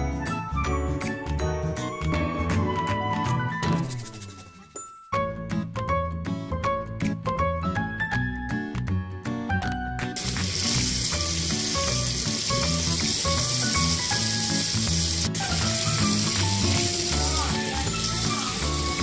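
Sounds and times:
background music: 0.0 - 19.0
tap water splashing in sink: 10.2 - 19.0.

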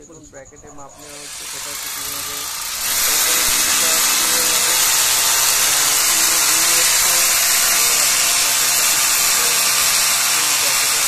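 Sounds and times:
electric drill boring: 1.0 - 11.0.

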